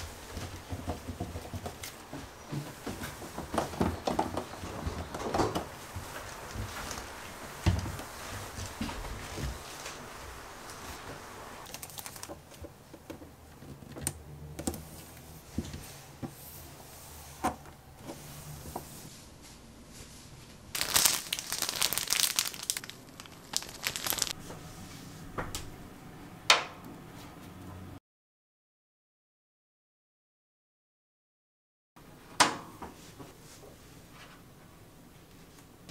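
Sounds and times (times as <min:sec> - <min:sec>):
filter sheet rustling: 0:02.8 - 0:12.7, 0:18.0 - 0:24.7.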